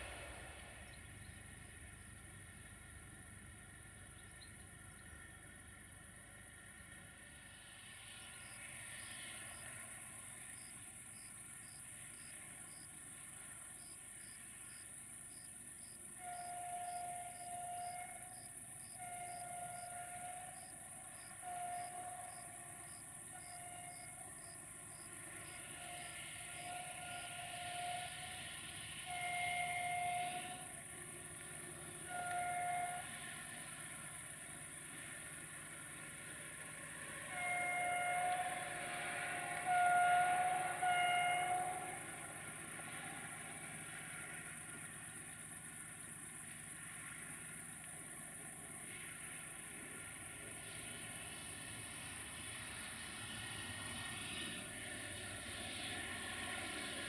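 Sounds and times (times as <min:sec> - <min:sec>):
locomotive horn blasts: 0:16.1 - 0:24.4, 0:25.4 - 0:30.8, 0:31.9 - 0:33.5, 0:37.2 - 0:42.5.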